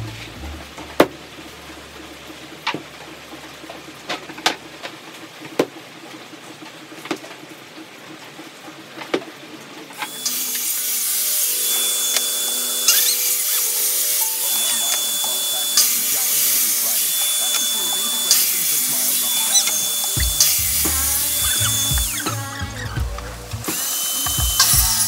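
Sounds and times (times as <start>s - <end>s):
circular saw cutting: 10.0s - 23.0s, 23.6s - 25.0s.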